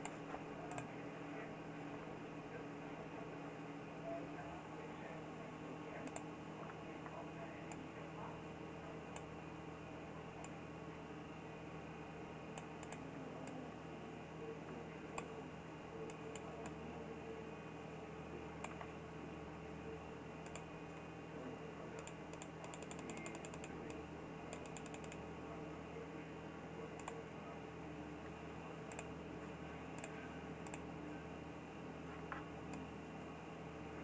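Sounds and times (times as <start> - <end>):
computer mouse clicks: 0.0 - 0.9, 6.0 - 6.8, 12.5 - 13.6, 16.0 - 16.8, 18.6 - 19.0, 20.4 - 20.7, 22.0 - 23.7, 24.5 - 25.2, 27.0 - 27.2, 28.9 - 29.1, 30.0 - 30.9
faint high whine: 0.0 - 34.0.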